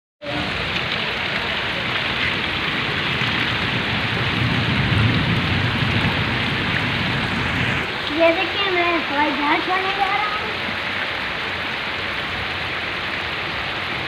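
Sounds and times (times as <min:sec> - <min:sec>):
heavy rain on wet ground: 0:00.2 - 0:14.0.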